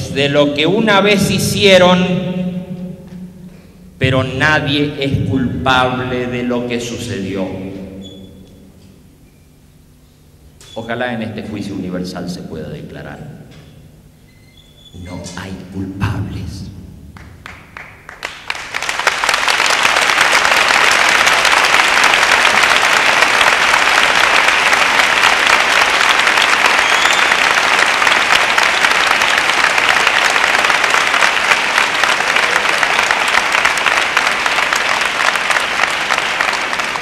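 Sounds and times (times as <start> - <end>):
large audience applauding: 17.1 - 37.0.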